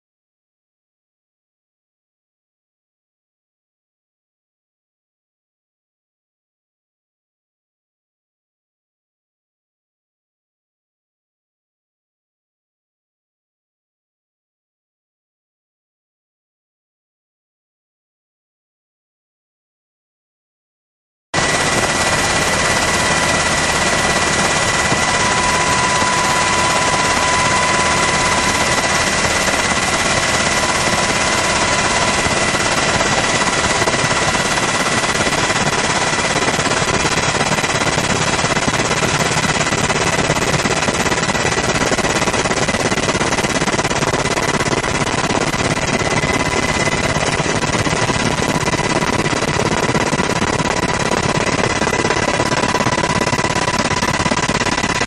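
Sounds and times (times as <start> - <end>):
helicopter rotor and turbine: 21.4 - 55.0.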